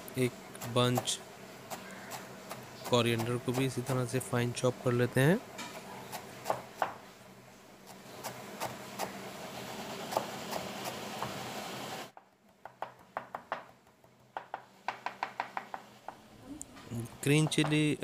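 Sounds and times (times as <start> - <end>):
knife chopping on wooden board: 1.7 - 4.1, 5.6 - 7.0, 10.1 - 11.4.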